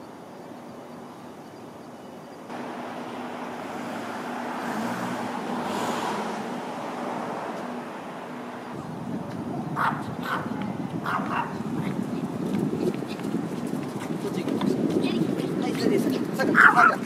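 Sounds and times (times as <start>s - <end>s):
steady low traffic hum: 0.0s - 17.0s
car passing: 2.5s - 11.8s.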